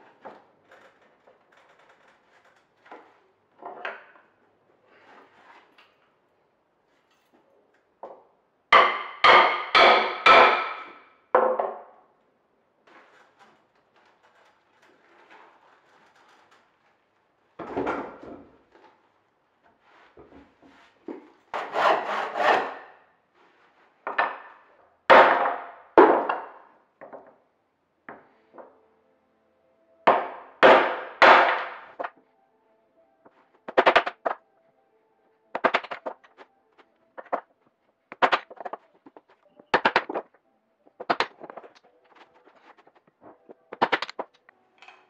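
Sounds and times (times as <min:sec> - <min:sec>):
rasp strokes on wood: 0:21.6 - 0:22.8.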